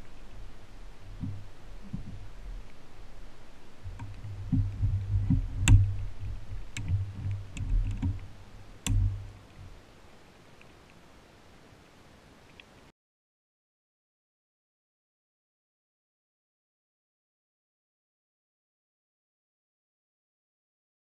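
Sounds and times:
steady low hum: 0:00.0 - 0:12.9
plastic clicks and knocks: 0:03.9 - 0:06.0, 0:06.7 - 0:09.3.

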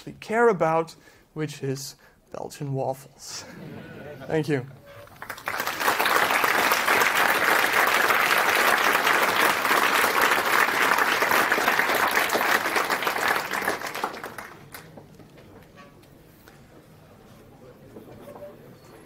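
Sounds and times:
audience applause: 0:05.1 - 0:15.2.

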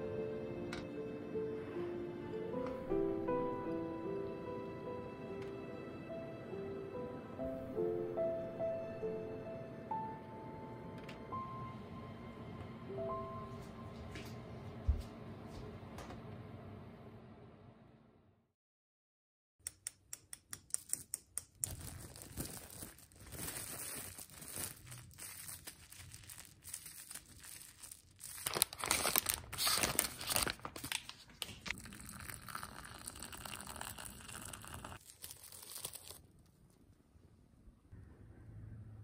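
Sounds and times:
plastic packaging crinkling and tearing: 0:21.5 - 0:36.5.

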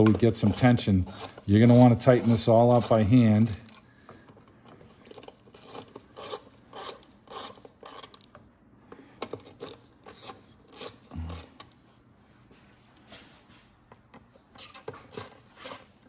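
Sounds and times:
nut driver rasping: 0:00.0 - 0:08.4, 0:09.2 - 0:11.7.

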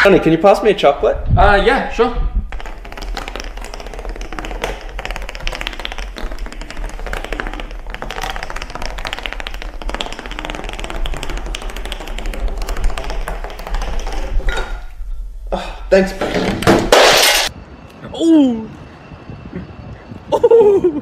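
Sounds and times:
wooden dominoes toppling: 0:02.4 - 0:14.5, 0:16.3 - 0:17.5.

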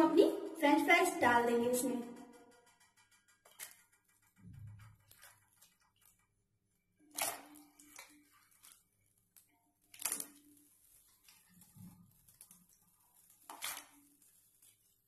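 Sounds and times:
water sloshing in pot: 0:06.9 - 0:15.0
sharp splashes: 0:07.1 - 0:08.1.

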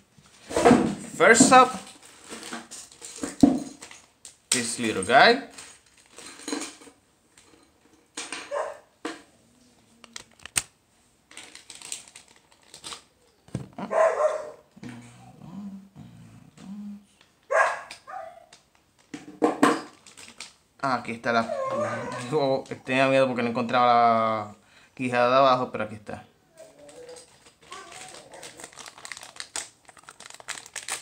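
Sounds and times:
dog barking: 0:08.5 - 0:08.9, 0:13.8 - 0:14.7, 0:17.5 - 0:18.5.

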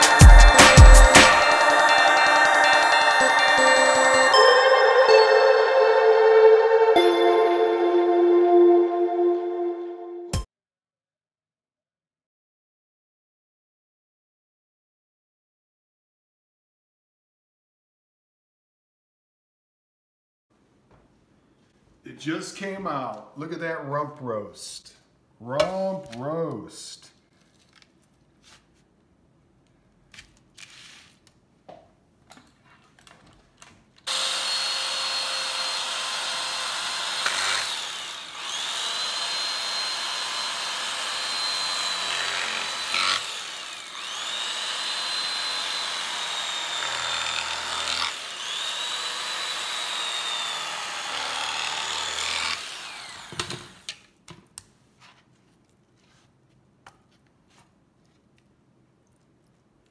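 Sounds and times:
electric carving knife whine: 0:34.1 - 0:53.9.

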